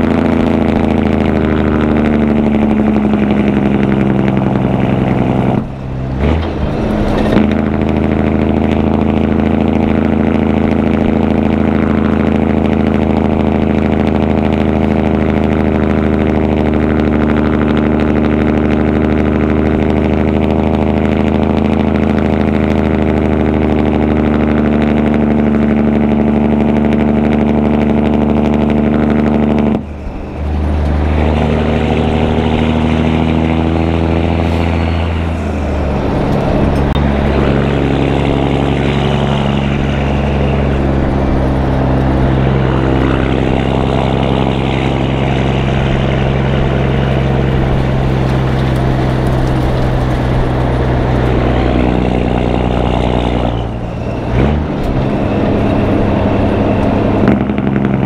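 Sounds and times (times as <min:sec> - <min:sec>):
diesel truck engine running: 0:00.0 - 0:58.0.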